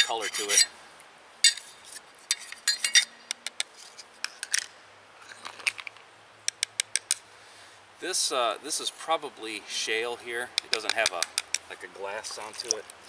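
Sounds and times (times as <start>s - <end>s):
stones tapping together: 10.6s - 11.7s.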